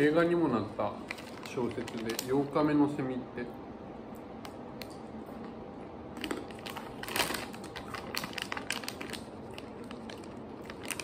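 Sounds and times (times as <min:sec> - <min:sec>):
crunchy food being chewed: 0:06.2 - 0:11.0.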